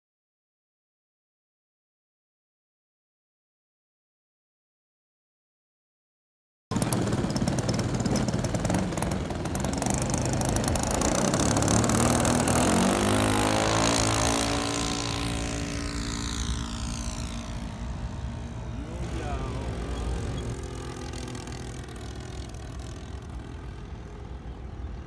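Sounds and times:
model plane engine and propeller: 6.7 - 25.0.

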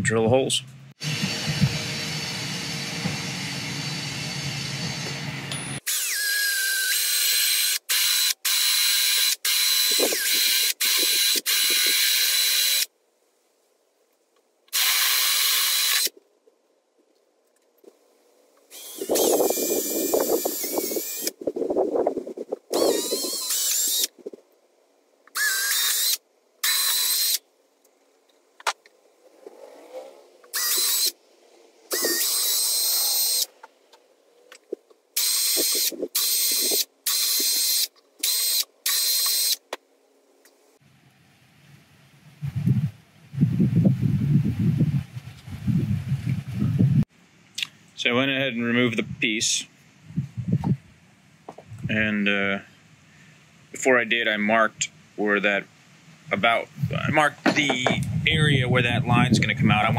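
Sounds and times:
cordless drill motor whine: 1.0 - 12.9, 14.8 - 16.2, 18.7 - 21.4, 22.7 - 24.1, 25.4 - 27.4, 30.5 - 31.2, 31.9 - 33.5, 35.2 - 39.6
drill bit grinding plastic: 5.8 - 12.9, 14.8 - 16.2, 18.7 - 21.4, 22.7 - 24.4, 25.3 - 27.4, 30.4 - 31.2, 31.9 - 33.6, 35.2 - 39.6.

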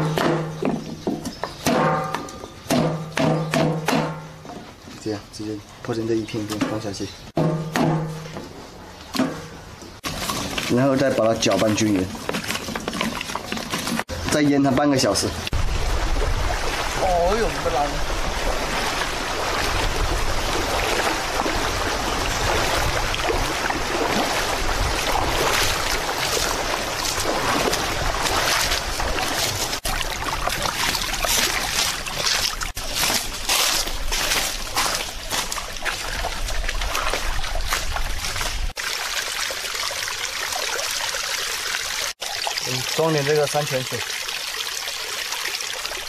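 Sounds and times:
stream trickling over stones: 10.0 - 46.0.

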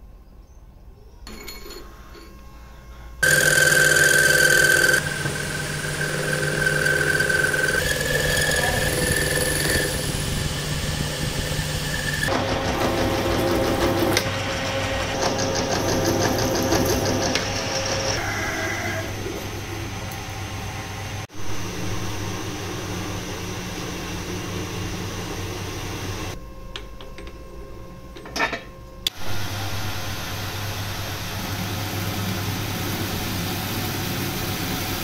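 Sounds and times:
lathe tool squealing on metal: 1.3 - 12.3
metal lathe running: 3.2 - 18.4.

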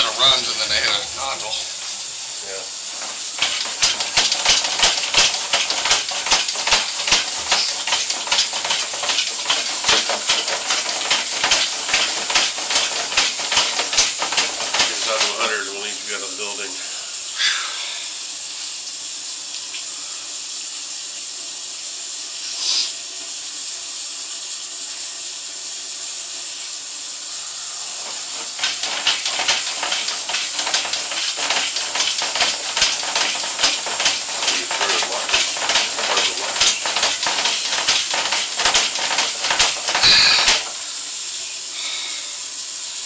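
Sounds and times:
steady hiss: 0.0 - 43.0
cable scraping in drain: 2.9 - 15.9, 28.0 - 40.7
cable clicking and rattling: 3.0 - 15.5, 28.0 - 40.7.

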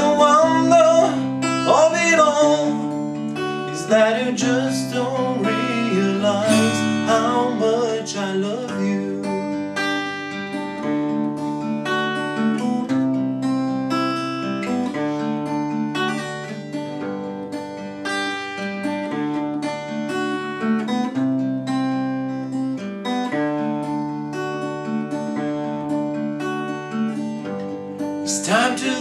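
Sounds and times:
fingerpicked acoustic guitar: 0.0 - 29.0.

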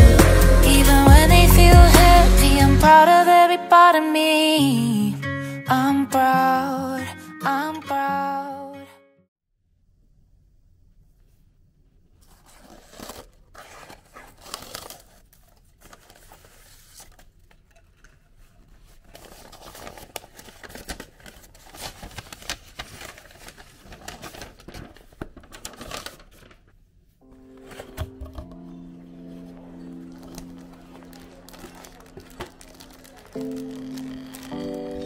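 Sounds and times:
paper wrapping rustling: 12.2 - 35.0.

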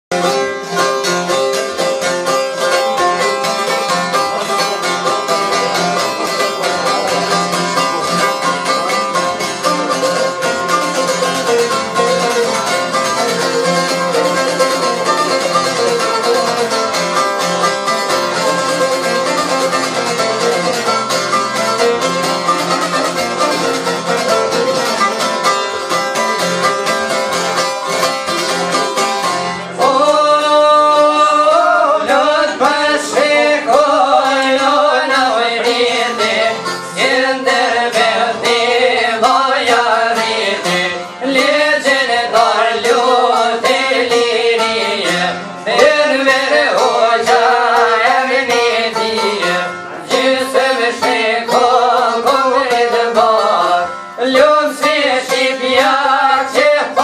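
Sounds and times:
plucked lutes folk tune: 0.1 - 57.0.

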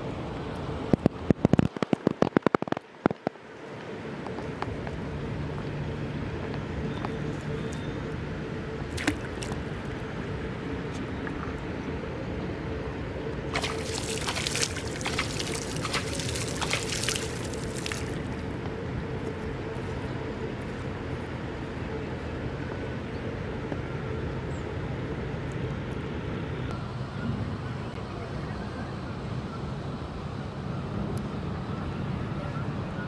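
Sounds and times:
faint hum: 0.0 - 33.0
water splashing and trickling: 8.9 - 9.9, 13.5 - 18.6.

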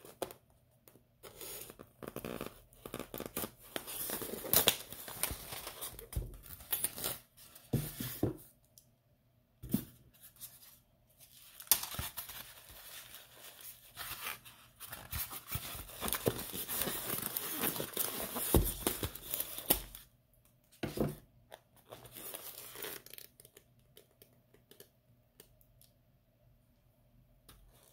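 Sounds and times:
packing materials rustling: 11.2 - 20.0.

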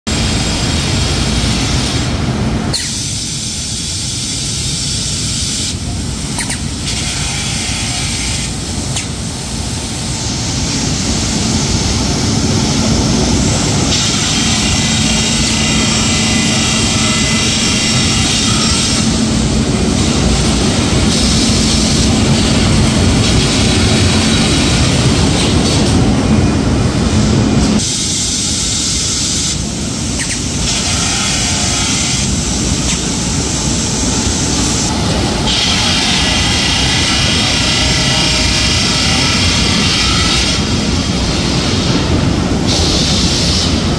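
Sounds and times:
glass grinding machine hissing: 2.7 - 43.9.

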